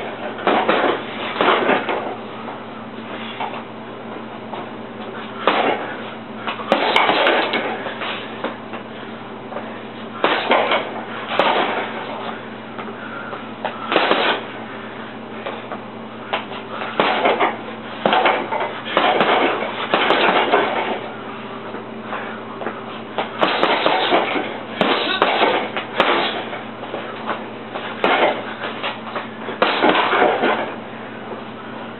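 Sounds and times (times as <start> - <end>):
punches thudding into heavy bag: 0.4 - 2.1, 5.4 - 5.9, 6.7 - 7.8, 10.2 - 12.1, 13.9 - 14.5, 16.8 - 21.0, 23.3 - 26.6, 27.9 - 28.5, 29.6 - 30.7.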